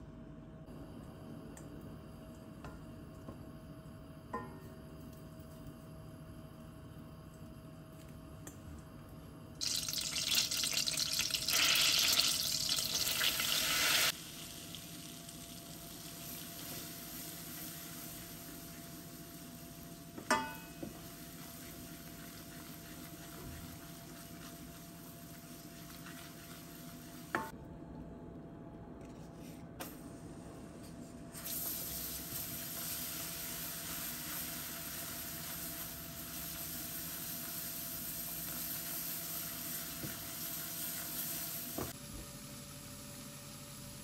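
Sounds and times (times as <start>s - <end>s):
butter and oil sizzling in pot: 9.6s - 27.6s, 31.4s - 42.0s.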